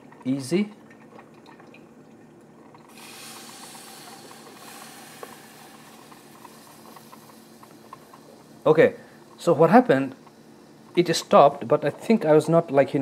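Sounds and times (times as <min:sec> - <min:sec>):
coffee maker brewing: 0:00.0 - 0:13.0
coffee hissing on hot plate: 0:02.8 - 0:12.4
faint dripping ticks: 0:03.6 - 0:12.3.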